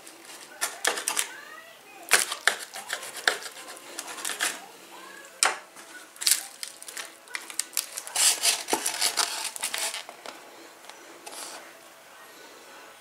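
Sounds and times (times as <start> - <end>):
aluminium foil crinkling: 0.0 - 1.4, 2.1 - 4.7, 5.8 - 11.7
serving utensil scraping: 2.1 - 4.7, 6.3 - 10.4, 11.2 - 11.7.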